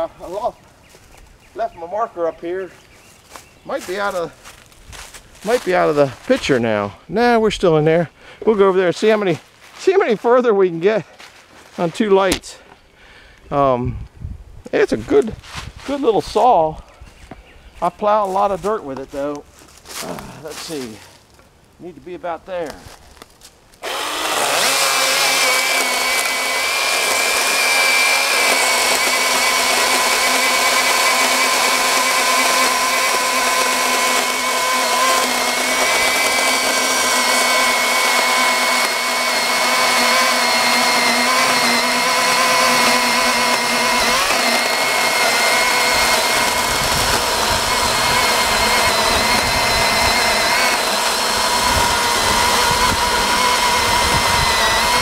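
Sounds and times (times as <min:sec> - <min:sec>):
electric chainsaw cutting log: 0:23.8 - 0:55.0.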